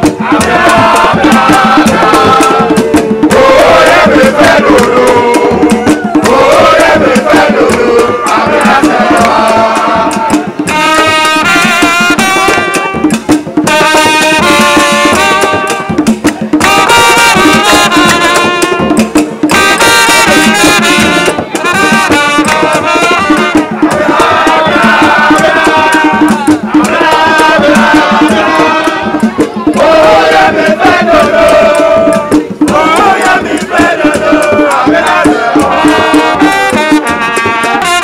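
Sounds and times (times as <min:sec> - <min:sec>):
men singing and chanting: 0:00.0 - 0:11.4, 0:21.1 - 0:38.0
hand drumming: 0:00.0 - 0:38.0.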